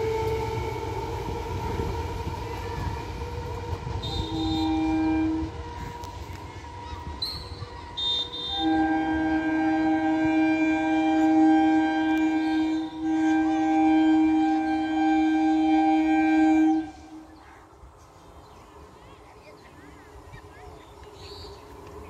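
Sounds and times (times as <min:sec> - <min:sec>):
train air horn blasts: 0:00.0 - 0:17.4.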